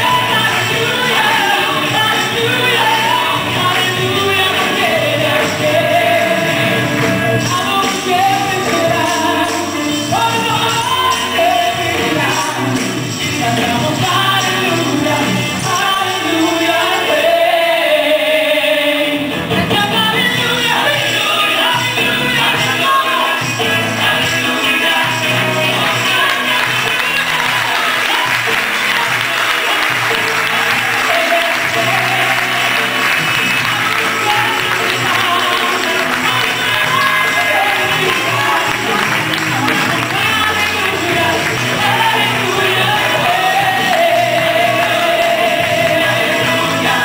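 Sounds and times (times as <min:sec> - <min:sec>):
tambourines shaken and struck: 0:00.0 - 0:16.5
group singing a hymn: 0:00.0 - 0:20.0, 0:20.6 - 0:47.0.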